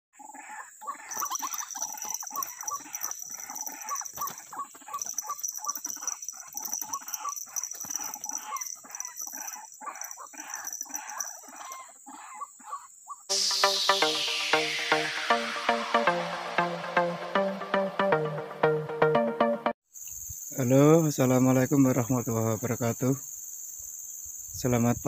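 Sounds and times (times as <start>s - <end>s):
bird calling repeated notes: 1.0s - 12.5s
steady high whine: 13.3s - 17.6s.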